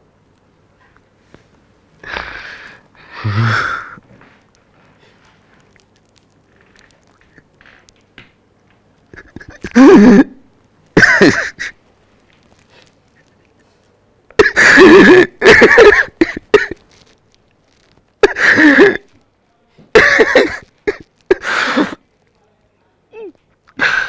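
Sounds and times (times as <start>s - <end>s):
man sobbing: 3.1s - 4.0s, 9.1s - 10.4s, 11.0s - 11.8s, 14.4s - 16.8s.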